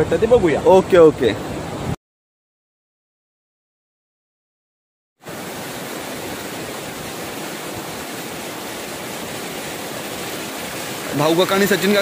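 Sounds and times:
sea surf washing: 0.0s - 2.0s, 5.2s - 12.0s.

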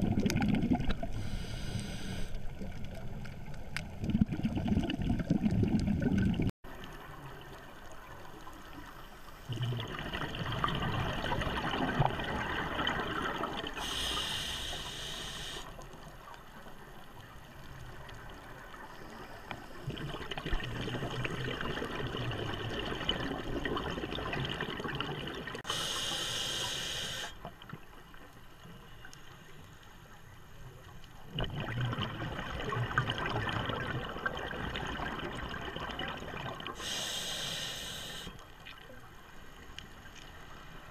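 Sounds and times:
bubbling underwater exhalations: 0.0s - 1.2s, 3.9s - 6.5s, 9.5s - 13.8s, 31.3s - 36.8s
regulator inhalation hiss: 1.2s - 2.4s, 13.8s - 15.8s, 25.6s - 27.4s, 36.8s - 38.4s.

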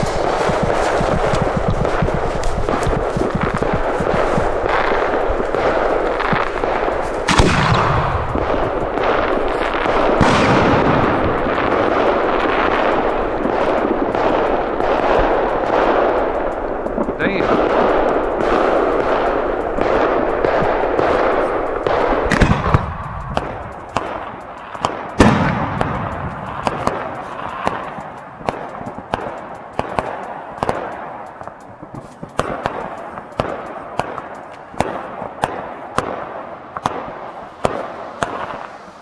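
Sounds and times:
firework bangs: 0.0s - 39.0s.

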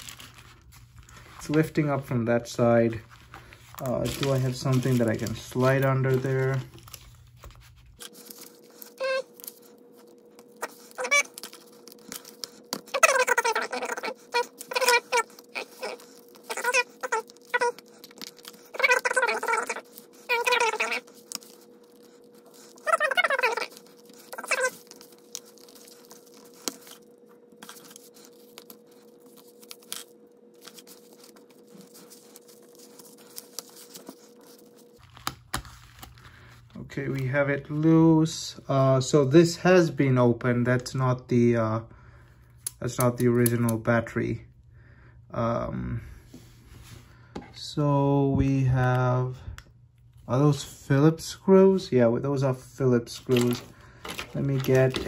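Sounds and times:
paper crinkling: 0.0s - 38.0s, 53.1s - 55.0s
thin steady hum: 0.0s - 55.0s
high squeaks: 9.0s - 9.3s, 10.6s - 11.4s.

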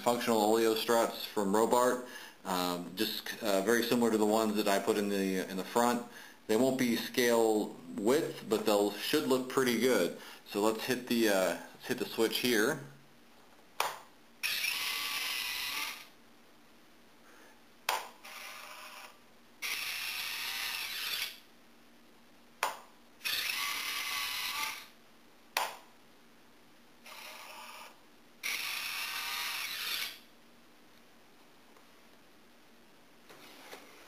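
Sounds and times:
small motor whirring: 14.4s - 16.1s, 18.2s - 21.4s, 23.2s - 25.0s, 27.0s - 30.2s
sharp click: 25.6s - 25.8s.

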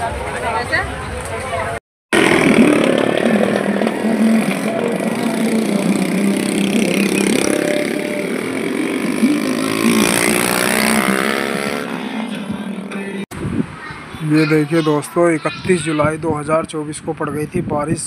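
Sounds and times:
motorcycle accelerating: 2.1s - 13.2s
motorcycle engines passing: 2.2s - 13.2s.

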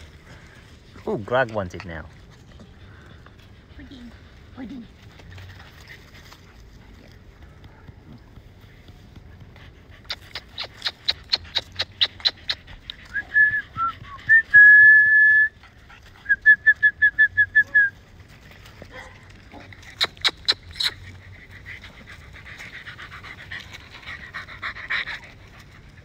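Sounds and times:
mouth clicks: 9.4s - 14.2s, 19.8s - 21.2s
person whistling: 13.1s - 15.5s, 16.3s - 17.9s.

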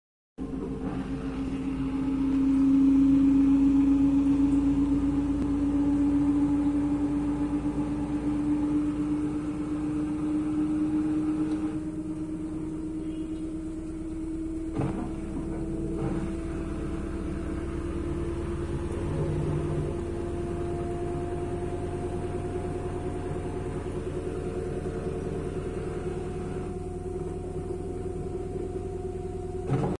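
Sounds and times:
washing machine motor whine: 0.4s - 30.0s
low rumble of drum: 11.4s - 30.0s.

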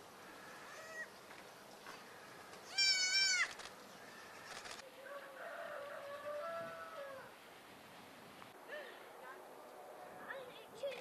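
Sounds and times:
goat kid bleating: 2.7s - 3.6s.

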